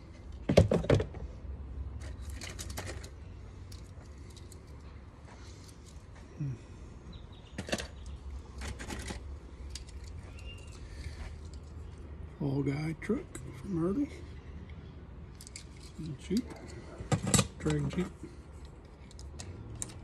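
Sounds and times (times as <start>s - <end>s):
toy cars clicking and clattering: 2.0s - 4.8s, 7.6s - 11.9s, 15.3s - 16.8s, 17.4s - 20.0s.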